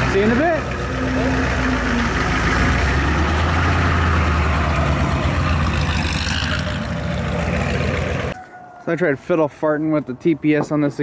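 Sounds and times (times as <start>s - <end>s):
pickup truck engine running: 0.0s - 8.4s.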